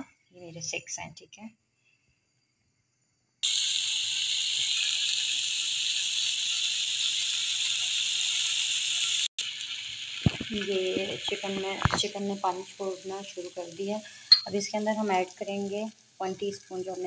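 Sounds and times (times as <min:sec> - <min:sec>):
sausage sizzling in frying pan: 0:03.4 - 0:17.0.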